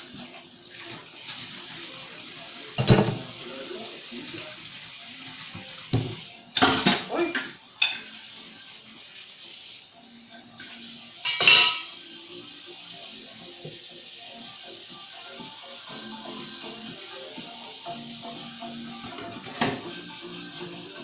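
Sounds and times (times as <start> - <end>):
water splashing in sink: 0.0 - 12.0
plates and cutlery clattering: 6.6 - 8.2, 11.2 - 12.0, 19.2 - 19.9.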